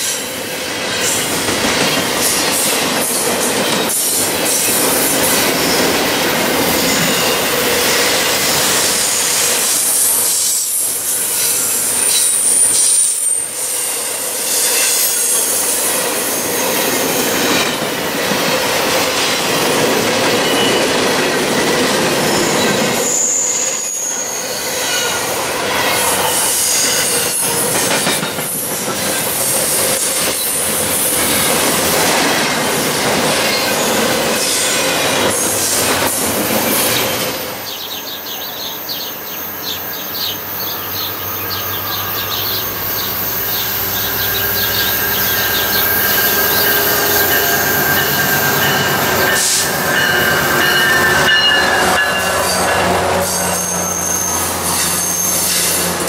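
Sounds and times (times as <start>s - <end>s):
steel wheels clattering on rail joints: 0.0s - 56.0s
high wheel squeal: 2.0s - 17.8s, 20.3s - 31.9s, 33.4s - 56.0s
diesel train engine hum: 25.3s - 56.0s.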